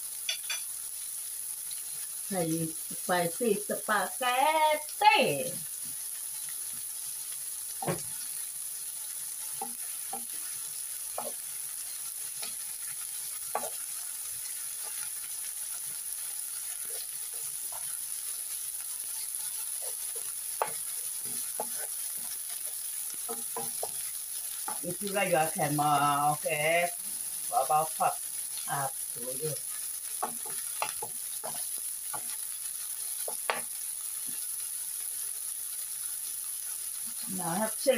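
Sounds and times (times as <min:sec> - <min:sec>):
meat sizzling in frying pan: 0:00.0 - 0:37.9
spatula and fork tapping pan: 0:00.2 - 0:00.7, 0:07.8 - 0:08.2, 0:09.5 - 0:11.6, 0:12.3 - 0:25.0, 0:30.0 - 0:34.4.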